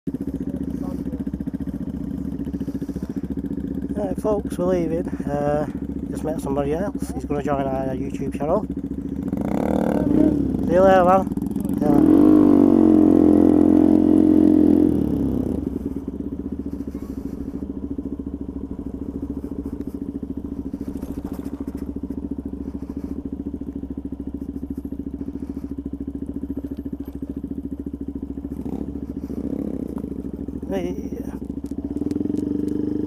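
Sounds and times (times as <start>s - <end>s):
small motorcycle engine: 0.1s - 33.0s.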